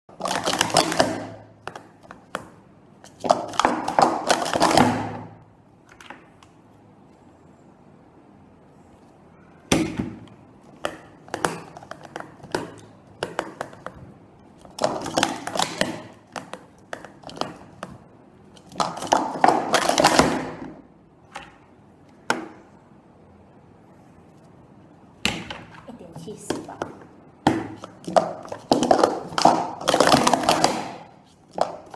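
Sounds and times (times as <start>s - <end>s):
plastic cups clattering: 0.1s - 2.5s, 3.1s - 5.2s, 14.6s - 20.8s, 26.5s - 31.9s.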